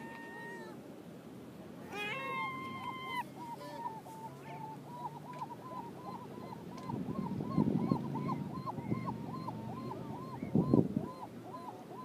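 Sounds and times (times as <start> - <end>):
gull calling: 1.9 - 12.0.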